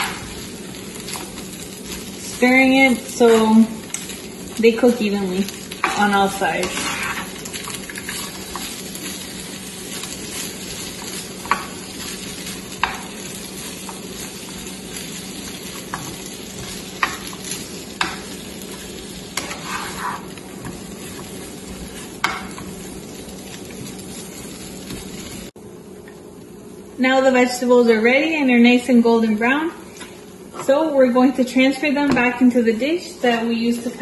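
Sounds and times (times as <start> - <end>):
vegetables sizzling in a frying pan: 0.0 - 25.6, 27.0 - 34.0
spatula tapping a pan: 11.4 - 11.8, 12.7 - 13.1, 15.9 - 17.4, 22.2 - 22.7.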